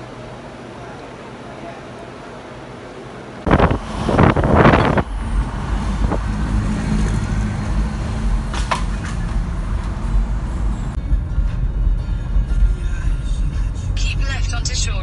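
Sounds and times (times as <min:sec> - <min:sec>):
car engine and road rumble: 0:00.0 - 0:15.0
loud rush of noise: 0:02.4 - 0:13.5.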